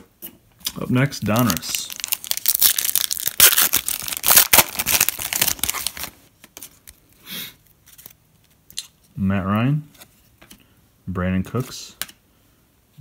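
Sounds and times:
foil wrapper tearing and crinkling: 1.2s - 6.2s.

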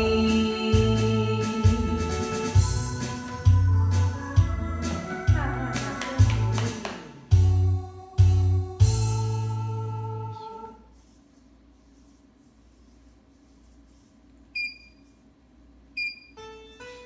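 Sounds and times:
short high beeps: 14.6s - 15.0s, 16.0s - 16.4s.

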